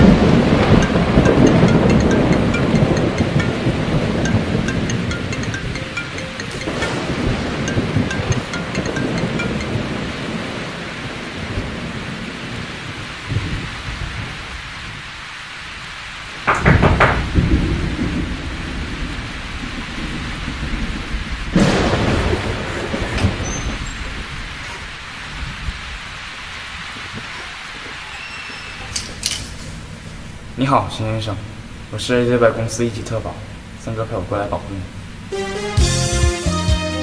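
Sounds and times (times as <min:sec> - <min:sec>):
thunder cracking and rumbling: 0:00.0 - 0:04.7, 0:09.7 - 0:15.1, 0:16.3 - 0:27.3
steady rain: 0:00.0 - 0:35.8.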